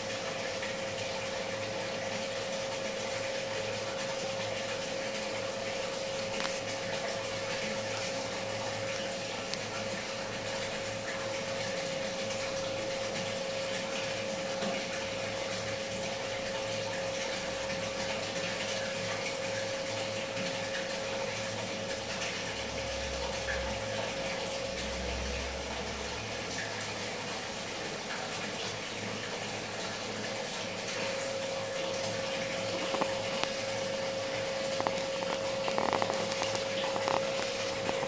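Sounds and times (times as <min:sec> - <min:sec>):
aquarium water rushing: 0:00.0 - 0:38.0
pump hum: 0:00.0 - 0:38.0.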